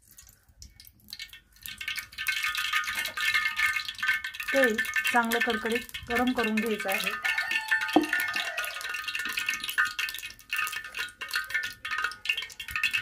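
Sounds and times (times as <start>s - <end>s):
hot oil crackling and popping: 0.0s - 13.0s.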